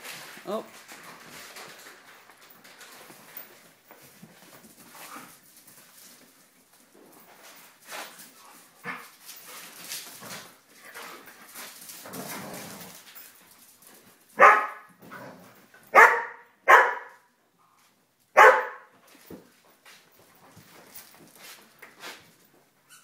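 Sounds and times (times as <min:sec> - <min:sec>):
dogs shuffling and scuffling: 0:00.0 - 0:16.1, 0:17.1 - 0:23.0
dog barking: 0:14.4 - 0:14.9, 0:15.9 - 0:17.2, 0:18.4 - 0:18.9.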